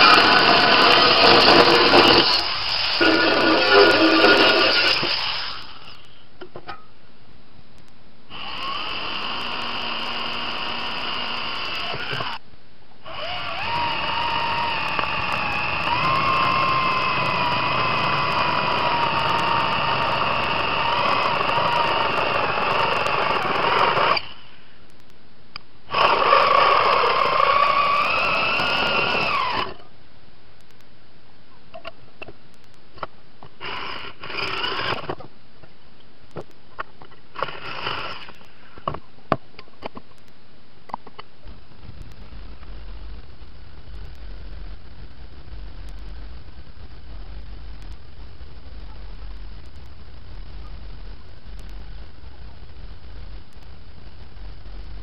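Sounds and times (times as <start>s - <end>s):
electric drill boring through steel: 0.0s - 6.0s, 8.3s - 12.4s, 13.1s - 24.4s, 25.9s - 29.8s, 33.6s - 35.2s, 37.4s - 38.3s.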